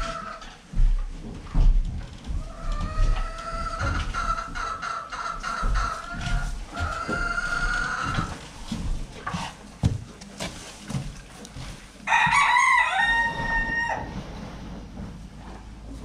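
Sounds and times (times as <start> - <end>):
footsteps on barn floor: 0.0 - 16.0
rooster crowing: 12.1 - 14.1.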